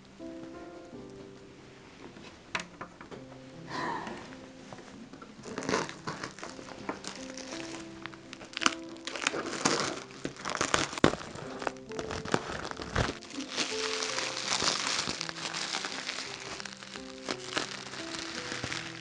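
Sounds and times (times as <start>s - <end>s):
soft background music: 0.0s - 19.0s
plastic wrap crinkling: 5.2s - 19.0s.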